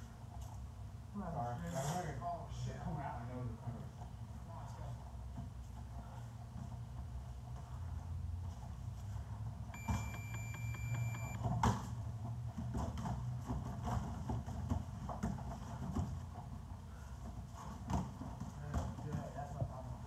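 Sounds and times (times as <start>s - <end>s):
steady low hum: 5.7s - 11.4s
long electronic timer beep: 9.8s - 11.4s.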